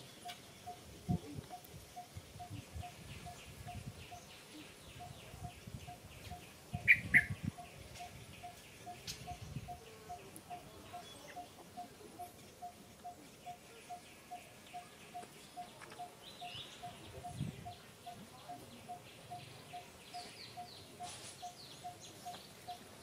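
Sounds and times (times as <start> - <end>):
loud high bird chirps: 6.8 - 9.8.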